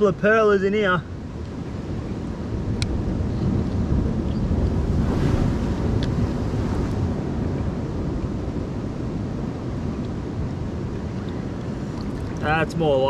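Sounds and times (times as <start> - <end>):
wind buffeting microphone: 1.0 - 13.0
surf breaking on rocks: 3.8 - 8.1.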